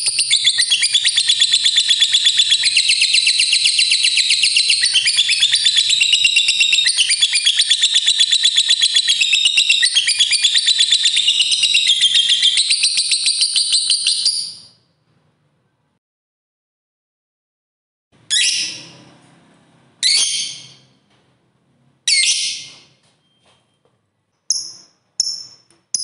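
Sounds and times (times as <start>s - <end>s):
lovebird shrill chatter: 0.0s - 14.7s.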